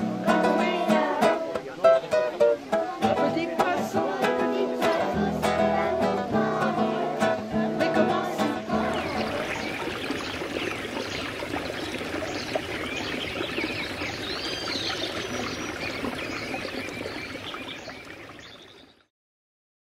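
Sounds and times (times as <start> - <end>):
stream water rushing: 0.0 - 19.0
faint high chirps: 8.8 - 19.1.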